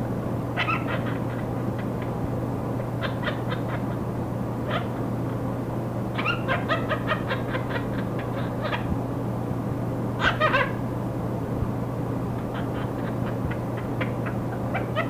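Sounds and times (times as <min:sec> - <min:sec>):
low hum and static hiss: 0:00.0 - 0:15.0
parrot imitating laughter: 0:00.6 - 0:02.2, 0:02.8 - 0:04.1, 0:06.2 - 0:08.9, 0:10.2 - 0:10.8, 0:12.4 - 0:15.0.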